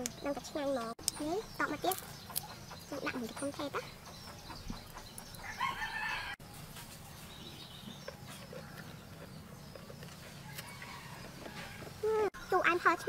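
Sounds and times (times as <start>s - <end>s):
rooster crowing: 5.4s - 6.4s, 10.4s - 12.0s.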